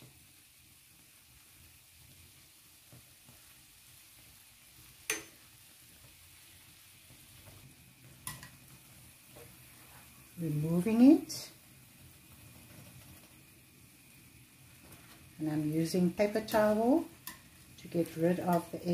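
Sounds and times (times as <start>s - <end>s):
dough frying in hot oil: 0.0s - 18.9s.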